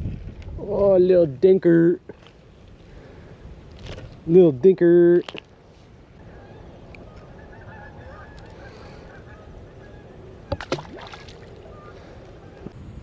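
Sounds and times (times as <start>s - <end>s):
outdoor hush: 2.0s - 13.0s
faint bird calls: 6.2s - 10.6s, 11.4s - 12.8s.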